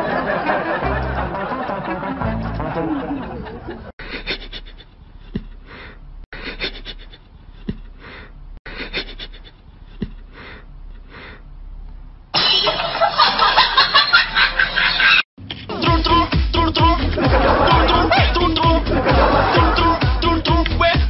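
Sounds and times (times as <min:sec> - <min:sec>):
music: 0:00.5 - 0:03.1, 0:14.5 - 0:21.0.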